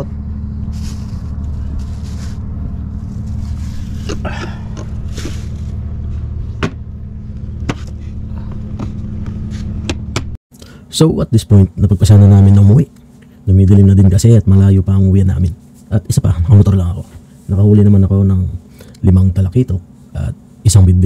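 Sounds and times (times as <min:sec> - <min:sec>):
engine hum: 0:00.0 - 0:10.9
rustling: 0:00.6 - 0:06.6.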